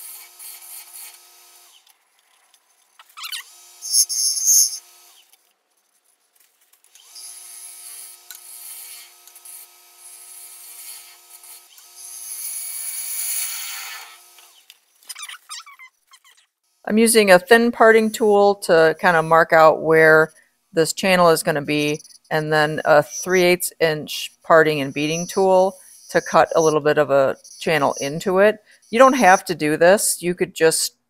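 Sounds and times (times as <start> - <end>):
wood lathe whining: 0.0 - 5.4, 6.9 - 15.2, 21.0 - 29.6
tool scraping spinning wood: 0.0 - 30.1.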